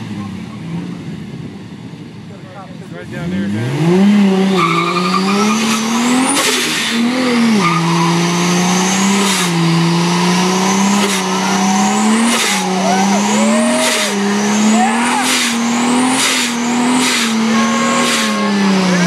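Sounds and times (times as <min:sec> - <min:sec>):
car engine revving high: 0:03.0 - 0:19.0
tyres squealing: 0:04.5 - 0:19.0.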